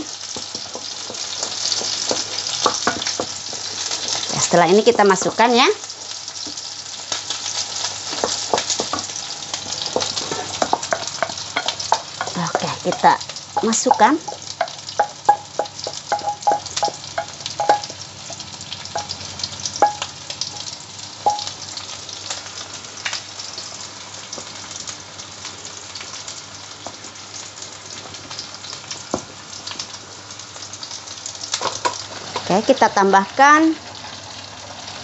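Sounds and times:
spatula stirring soup: 0:00.1 - 0:04.3, 0:08.1 - 0:18.4.

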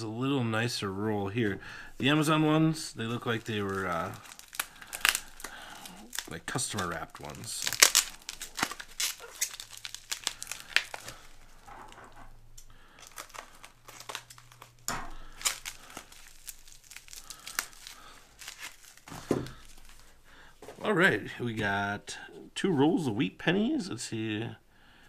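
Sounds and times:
plastic wrapping crinkling and tearing: 0:02.0 - 0:20.7.

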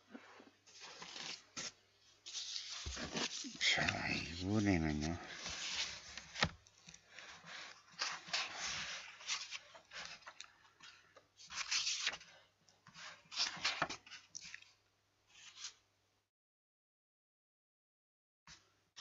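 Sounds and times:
paper rustling: 0:00.7 - 0:14.7.

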